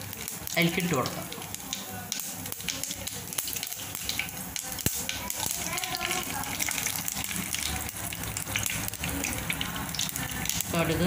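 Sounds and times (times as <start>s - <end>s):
seeds popping in hot oil: 0.0s - 11.0s.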